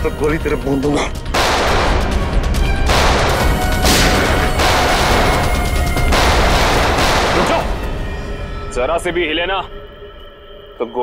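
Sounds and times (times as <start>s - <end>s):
dramatic background music: 0.0s - 11.0s
rapid pistol gunfire: 1.3s - 2.2s, 2.8s - 7.9s.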